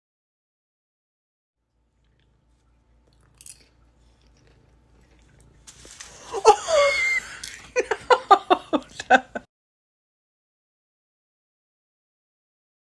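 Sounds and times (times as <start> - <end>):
rustling: 5.5 - 6.6
bursts of laughter: 6.2 - 9.4
woman's startled cry: 6.3 - 7.4.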